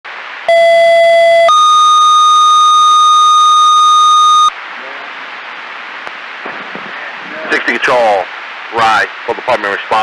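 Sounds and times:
two-tone radio page tones: 0:00.5 - 0:04.6
radio hiss: 0:03.9 - 0:10.0.

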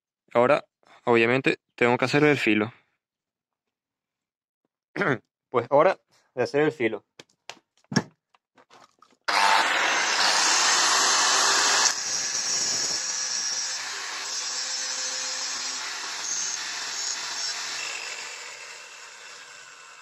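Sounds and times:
angle grinder grinding steel: 0:09.3 - 0:20.0.

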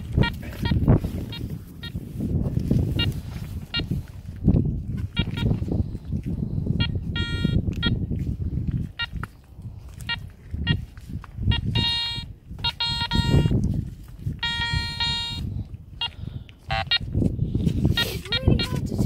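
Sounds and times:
metal detector beeps: 0:00.0 - 0:02.1, 0:02.8 - 0:04.0, 0:05.0 - 0:05.6, 0:06.7 - 0:08.1, 0:08.8 - 0:09.2, 0:10.0 - 0:13.7, 0:14.3 - 0:17.2, 0:17.8 - 0:18.9
wind rumble on microphone: 0:00.0 - 0:19.0.

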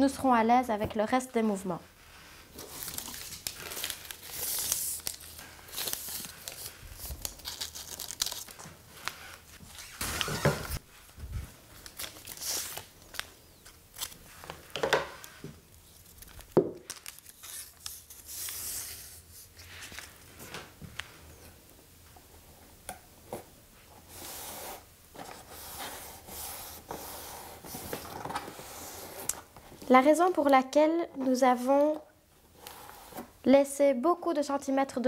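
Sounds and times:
paper tearing and crinkling: 0:02.6 - 0:10.8, 0:11.8 - 0:13.3, 0:13.9 - 0:14.6.

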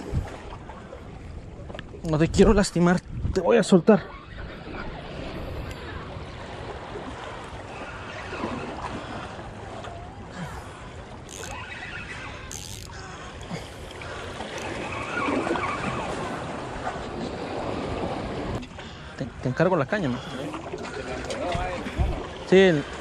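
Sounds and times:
water lapping against rocks: 0:00.0 - 0:02.4, 0:04.1 - 0:19.4, 0:20.0 - 0:23.0
wind on microphone: 0:00.0 - 0:10.0, 0:21.4 - 0:22.4.

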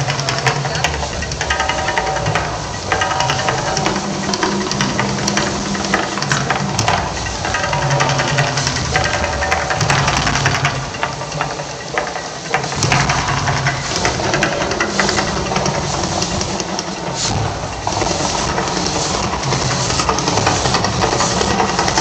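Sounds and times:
deep pulsing rumble: 0:00.0 - 0:22.0
flames crackling and hissing: 0:00.0 - 0:22.0.

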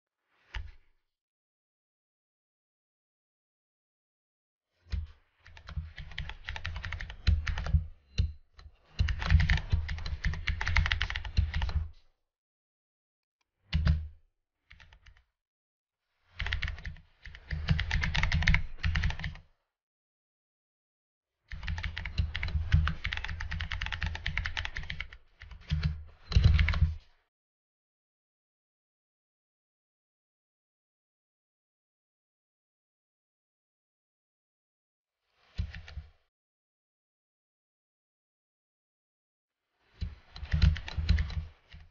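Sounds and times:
computer keyboard typing: 0:05.5 - 0:08.4, 0:09.0 - 0:11.9, 0:13.7 - 0:14.1, 0:16.4 - 0:19.4, 0:21.5 - 0:27.0, 0:40.4 - 0:41.8.

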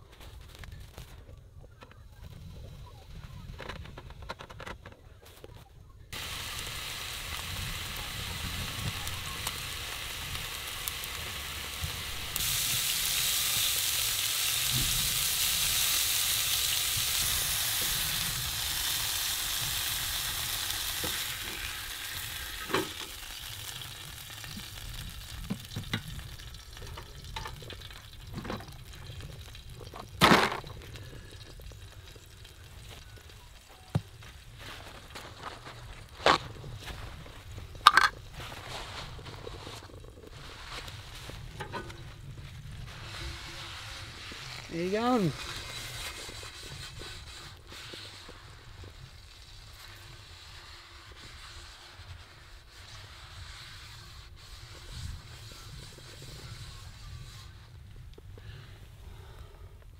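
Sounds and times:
steaks sizzling in a frying pan: 0:06.2 - 0:29.6.

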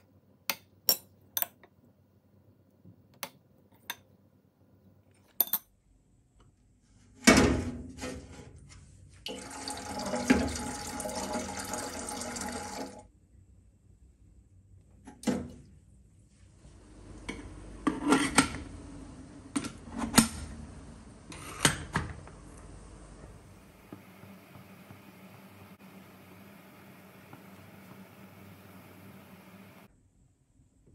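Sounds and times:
tap water running: 0:09.3 - 0:13.1, 0:23.5 - 0:29.9
faint steady hiss: 0:22.2 - 0:30.9.

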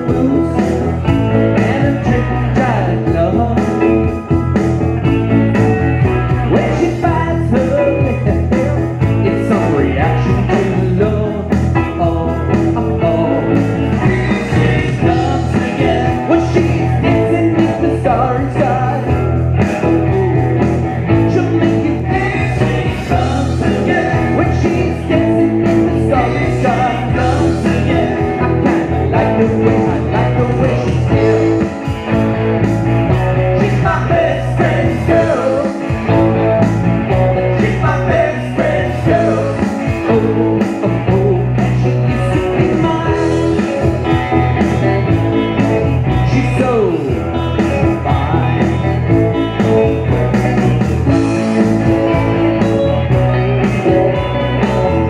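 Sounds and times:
man singing into microphone: 0:00.0 - 0:04.2, 0:06.4 - 0:31.8, 0:33.4 - 0:36.1, 0:37.4 - 0:43.8, 0:46.1 - 0:49.1
drums: 0:00.0 - 0:55.0
electric bass: 0:00.0 - 0:55.0
electric guitar: 0:00.0 - 0:55.0
keyboard: 0:00.0 - 0:55.0.

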